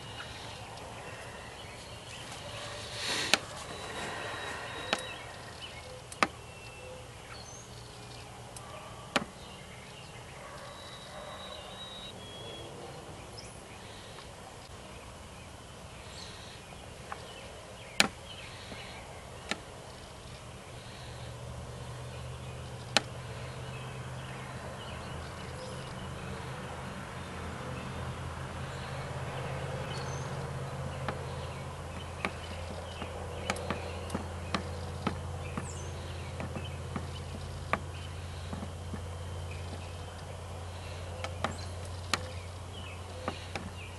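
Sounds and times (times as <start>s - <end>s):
low hum: 0.0s - 9.1s
faint birds chirping: 0.0s - 43.9s
sharp clicks: 3.1s - 6.8s, 30.9s - 43.8s.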